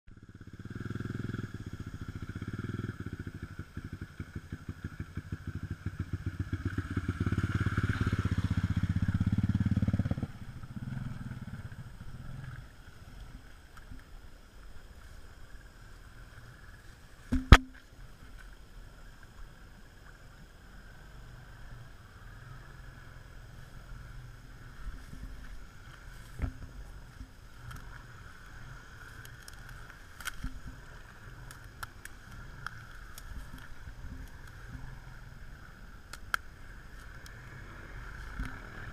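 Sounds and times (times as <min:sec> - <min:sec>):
atv engine with pulsing exhaust: 0:00.1 - 0:38.9
sharp knock: 0:17.3 - 0:17.8.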